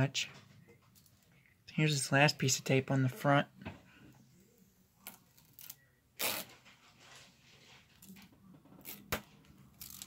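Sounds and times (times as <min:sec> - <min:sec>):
tape being peeled off: 0:05.0 - 0:06.6.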